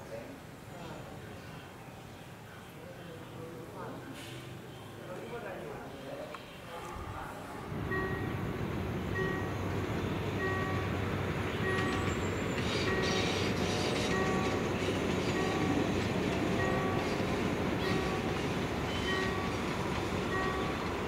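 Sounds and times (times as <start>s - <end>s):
diesel locomotive engine running: 7.2s - 21.0s
bell dinging: 7.9s - 8.4s, 9.2s - 9.6s, 11.6s - 12.1s, 16.6s - 17.1s, 20.3s - 20.9s.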